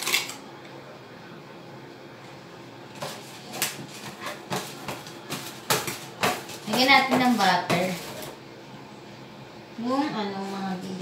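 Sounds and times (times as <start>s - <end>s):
spatula scraping container: 3.0s - 8.4s.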